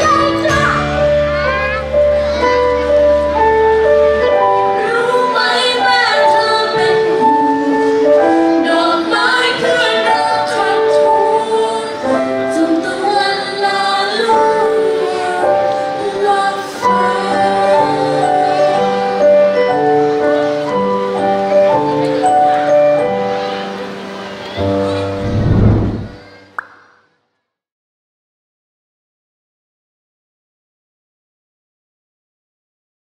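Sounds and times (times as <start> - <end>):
instrumental backing music: 0.0 - 26.6
person singing: 4.7 - 18.8.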